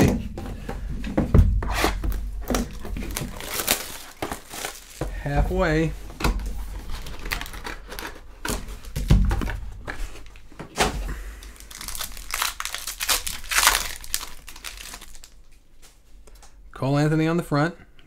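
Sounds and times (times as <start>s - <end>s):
foil wrappers crinkling and tearing: 2.5s - 5.8s, 6.8s - 8.9s, 11.3s - 15.5s.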